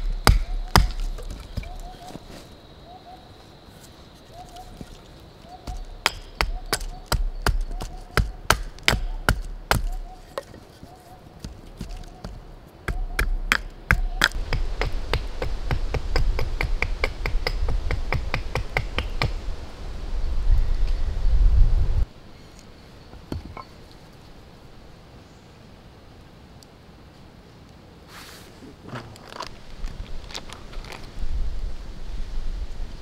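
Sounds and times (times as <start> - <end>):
knife chopping into wood: 0.0 - 2.1, 5.7 - 10.6.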